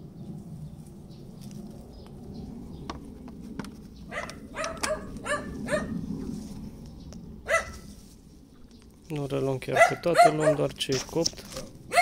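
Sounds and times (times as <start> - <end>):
dog barking: 4.1 - 6.0, 7.5 - 7.8, 9.7 - 10.7, 11.6 - 12.0.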